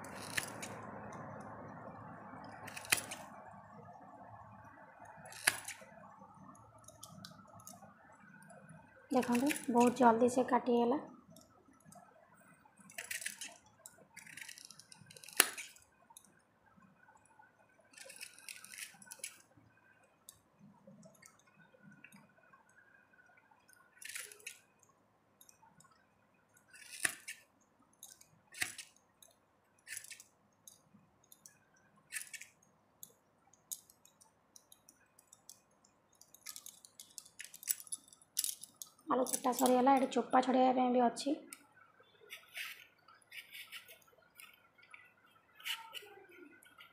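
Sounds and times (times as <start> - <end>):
cutter crunching through potato: 0.0 - 0.8.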